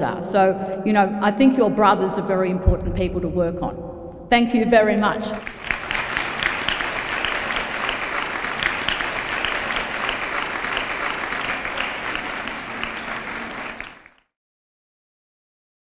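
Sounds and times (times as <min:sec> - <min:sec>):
audience applauding: 0:05.4 - 0:14.3.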